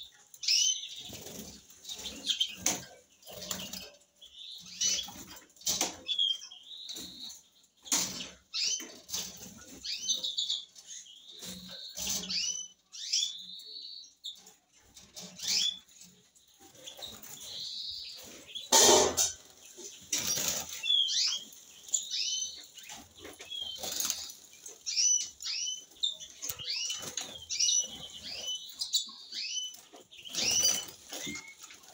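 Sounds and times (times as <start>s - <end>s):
finches chirping: 16.8s - 31.7s
wings fluttering: 22.7s - 25.3s.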